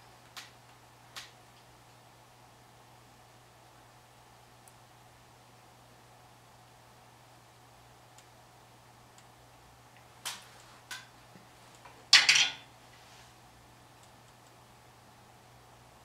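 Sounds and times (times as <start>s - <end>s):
rattling clatter of sticks: 12.1s - 12.7s.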